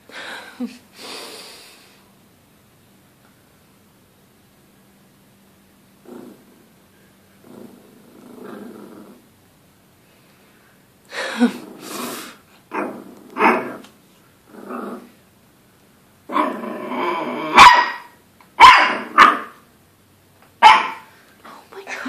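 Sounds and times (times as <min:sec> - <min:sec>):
puppy growling: 0:06.0 - 0:09.3, 0:11.4 - 0:15.2, 0:16.3 - 0:17.7
puppy barking: 0:13.4 - 0:13.8, 0:17.5 - 0:19.6, 0:20.6 - 0:21.1.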